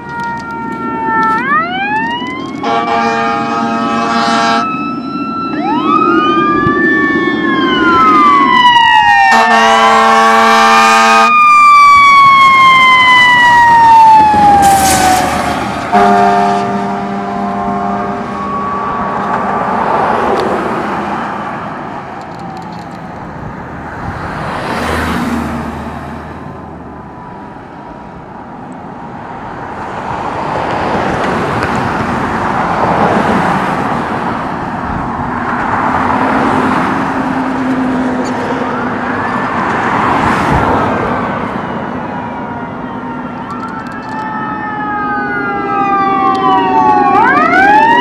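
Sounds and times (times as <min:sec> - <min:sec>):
fire engine sirens wailing: 0:00.0 - 0:48.0
air horn blasts: 0:02.6 - 0:04.8, 0:09.3 - 0:11.4, 0:15.9 - 0:19.2.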